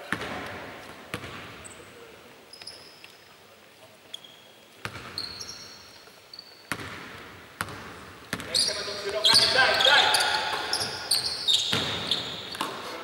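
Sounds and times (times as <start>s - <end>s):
basketball bouncing: 0.0s - 1.6s, 4.8s - 5.4s, 6.7s - 8.6s, 10.5s - 12.8s
shoes squeaking on hardwood: 4.1s - 6.7s, 8.4s - 12.8s.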